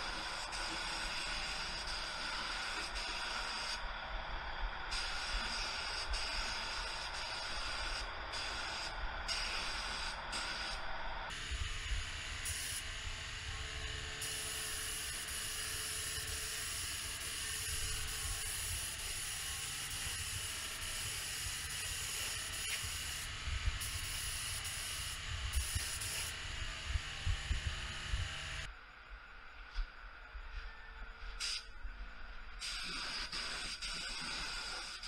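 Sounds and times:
spray gun hissing: 0:00.0 - 0:03.8, 0:04.9 - 0:11.5, 0:12.4 - 0:12.9, 0:14.2 - 0:26.4, 0:32.6 - 0:35.0.

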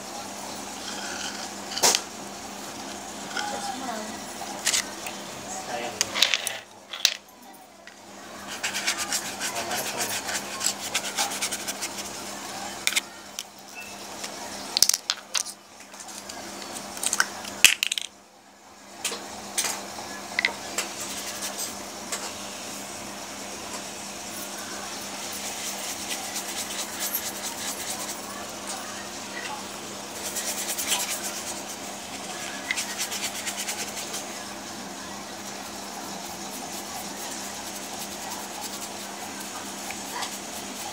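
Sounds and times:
rubbing and scraping: 0:08.4 - 0:12.2, 0:25.3 - 0:28.3, 0:30.2 - 0:34.4.

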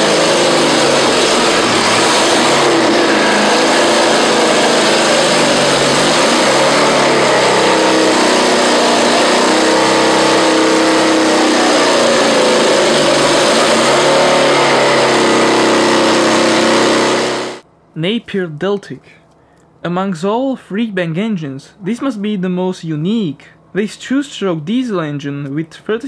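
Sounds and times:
rotary engine revving: 0:00.0 - 0:17.6.

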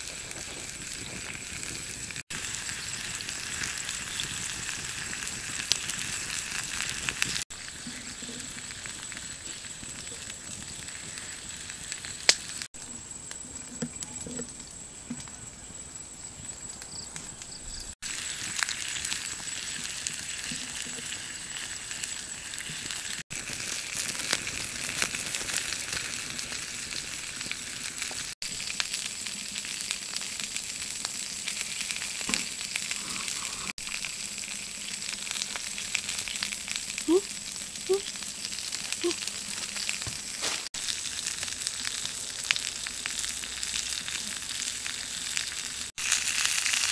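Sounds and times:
meat sizzling on hot stone: 0:00.0 - 0:14.8, 0:16.4 - 0:46.9.

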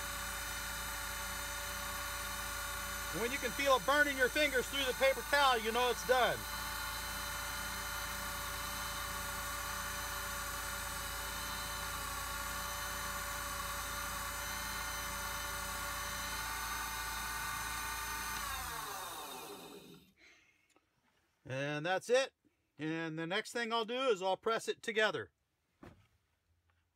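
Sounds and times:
lathe spinning down: 0:00.0 - 0:20.1
lathe whining: 0:00.0 - 0:20.1.

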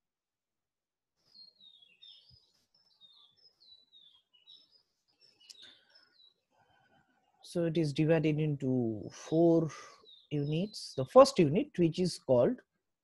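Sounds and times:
faint bird chirps: 0:01.2 - 0:07.9, 0:09.0 - 0:11.2.

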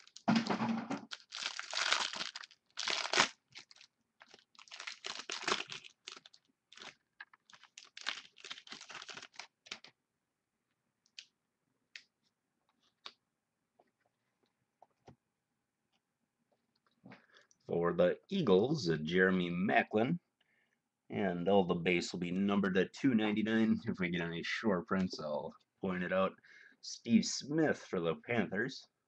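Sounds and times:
plastic wrapper tearing and crinkling: 0:00.0 - 0:00.4, 0:01.0 - 0:09.9.

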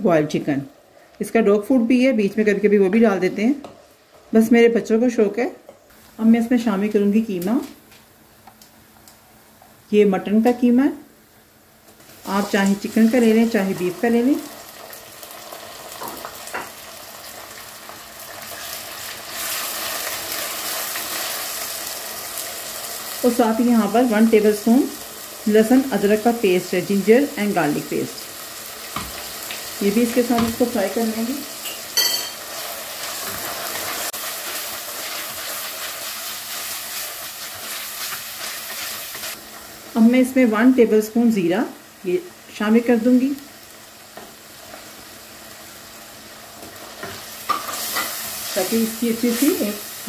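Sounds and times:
meat sizzling in hot oil: 0:12.0 - 0:40.9, 0:41.6 - 0:50.0.

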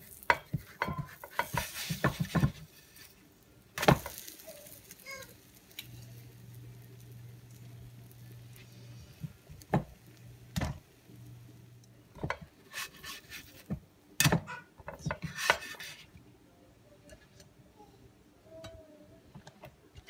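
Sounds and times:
spatula scraping frying pan: 0:00.0 - 0:03.2, 0:03.8 - 0:09.4, 0:12.3 - 0:13.8, 0:15.2 - 0:16.1
low steady hum: 0:00.0 - 0:20.0
spatula knocking on pan: 0:00.3 - 0:02.6, 0:09.7 - 0:09.9.

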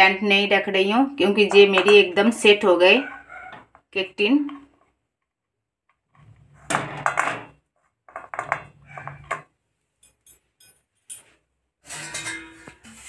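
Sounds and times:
metal tin scraping against pot: 0:11.1 - 0:13.0.

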